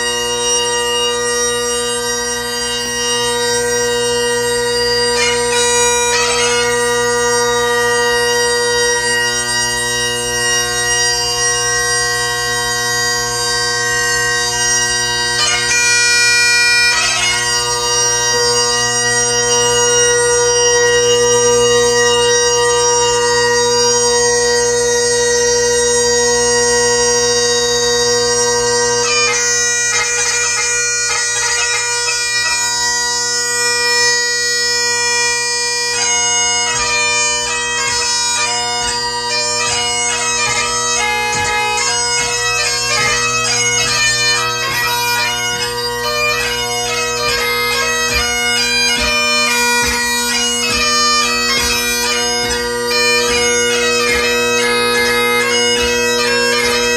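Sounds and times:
bagpipe playing solo: 0.0 - 56.9.

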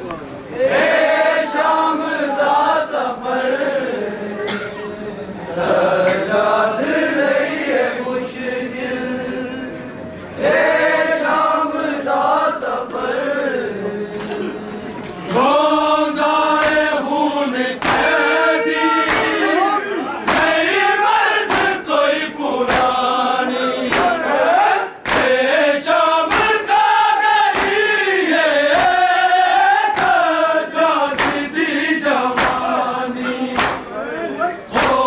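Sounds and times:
mourners chanting a lament: 0.4 - 35.0
rhythmic chest-beating slaps: 15.3 - 19.5, 20.2 - 35.0.

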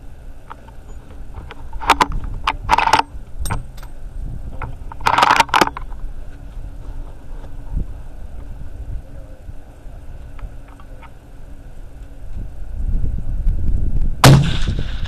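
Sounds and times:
rifle handling clicks and rattles: 0.5 - 4.0, 4.6 - 6.0
scraping rustles: 4.6 - 8.6.

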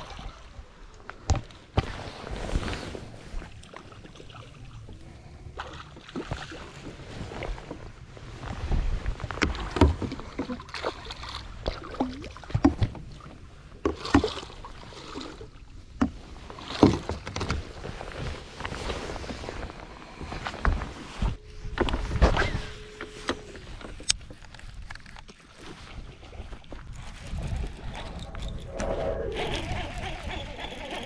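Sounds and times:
knocks and clatter on boat: 8.5 - 14.6, 15.8 - 18.4
steady low rumble: 27.0 - 29.9.

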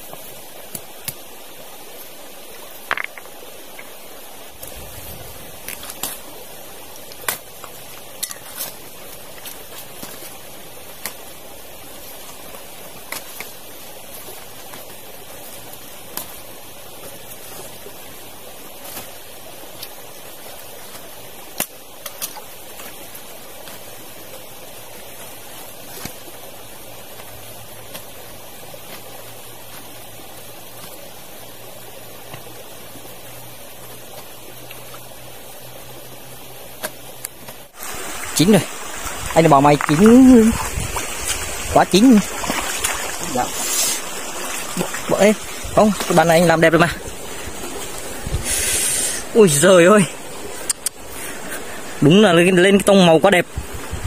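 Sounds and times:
stream rushing: 0.0 - 54.0
sharp pops and crackles: 20.8 - 23.9, 50.6 - 51.0.

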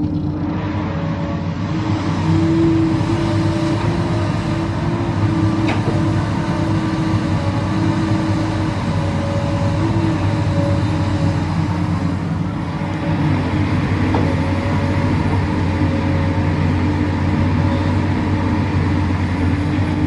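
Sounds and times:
excavator diesel engine rumbling: 0.0 - 20.0
steady engine whine: 0.0 - 20.0.

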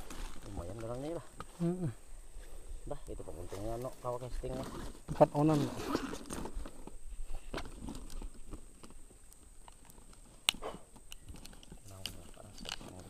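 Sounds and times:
clicks and rustles of bag: 3.8 - 13.0.

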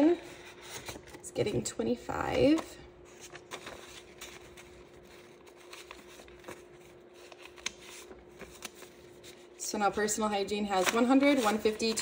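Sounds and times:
paper banknotes rustling: 2.4 - 12.0.

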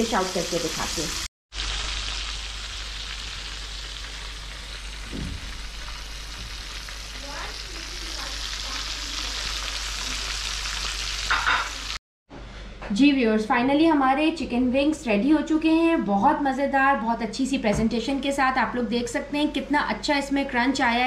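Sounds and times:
chicken wings deep-frying in oil: 0.0 - 12.0.

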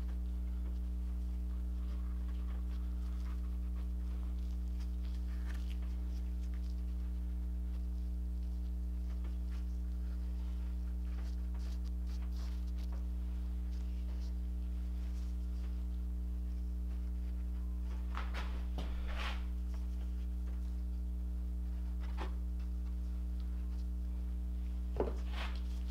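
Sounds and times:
low electrical hum: 0.0 - 25.9
cloth rustling and crinkling: 17.9 - 19.5.

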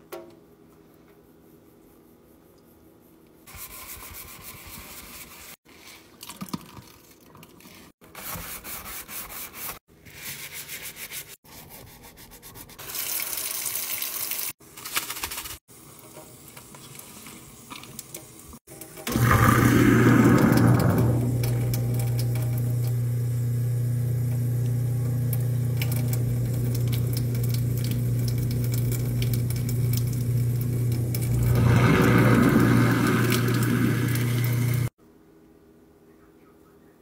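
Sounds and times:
scrubbing a steel sink: 3.5 - 6.1, 7.6 - 13.2.

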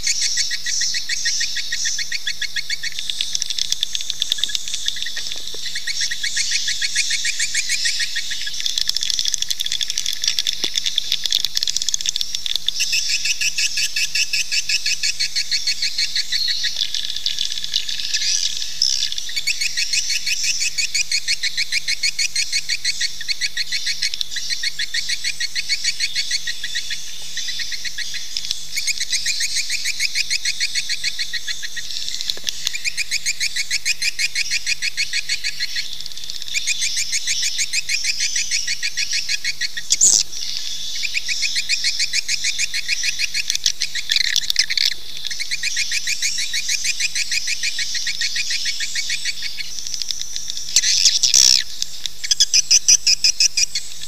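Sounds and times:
sharp loud bird calls: 0.0 - 54.0
swiftlets twittering chorus: 50.7 - 53.7.

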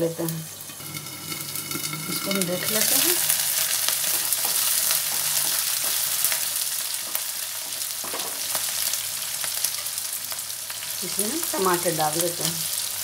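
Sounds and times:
onions sizzling in oil: 0.0 - 13.0
spatula scraping pan: 0.8 - 3.3.

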